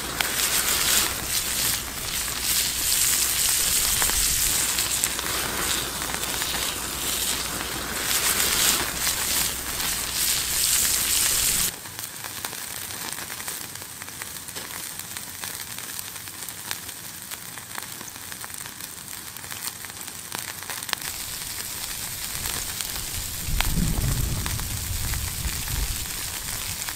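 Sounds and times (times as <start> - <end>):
low rumbling noise: 0.0 - 11.7, 21.1 - 26.9
crackles and pops: 0.0 - 26.9
meat sizzling on a hot slab: 0.0 - 26.9.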